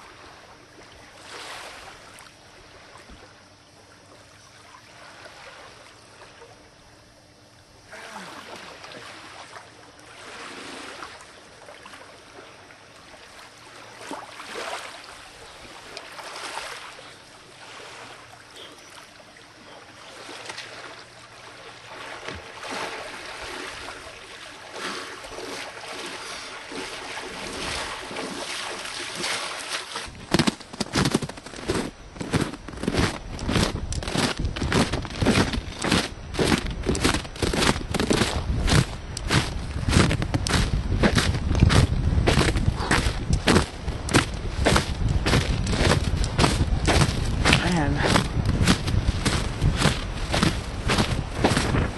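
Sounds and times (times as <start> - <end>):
water splashing around wading legs: 20.0 - 51.9.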